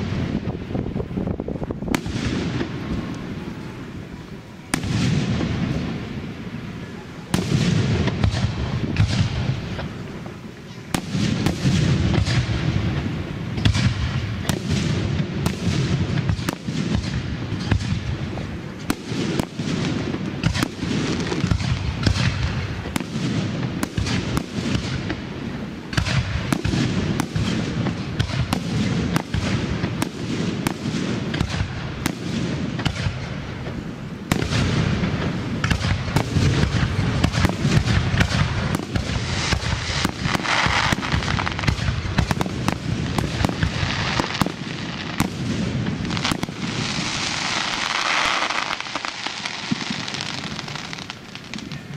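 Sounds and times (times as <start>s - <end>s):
fireworks bursting: 0.0s - 51.9s.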